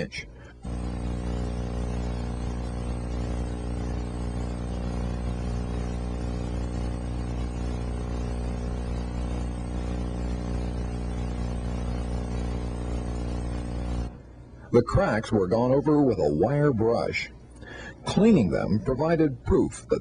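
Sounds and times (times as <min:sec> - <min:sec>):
low buzzing machine hum: 0:00.1 - 0:16.5.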